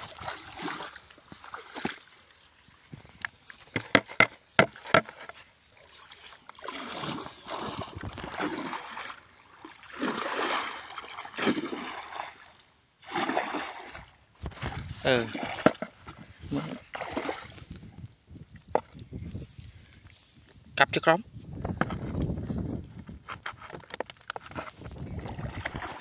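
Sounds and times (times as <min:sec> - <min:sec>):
water sloshing as person wades: 0:00.0 - 0:18.1, 0:24.8 - 0:26.0.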